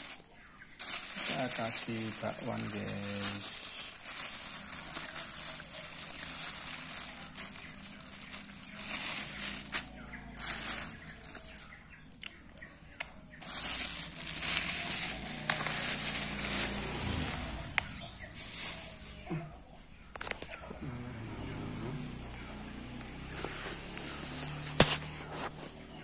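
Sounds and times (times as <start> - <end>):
plastic bag and paper rustling: 0.0 - 11.8, 13.4 - 19.5.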